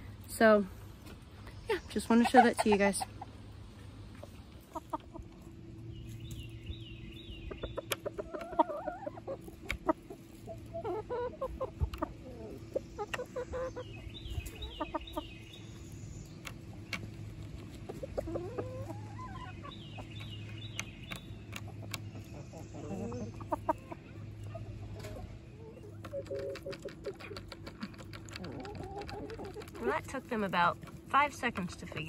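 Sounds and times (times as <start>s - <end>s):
chickens clucking softly: 2.0s - 6.4s, 7.0s - 30.2s.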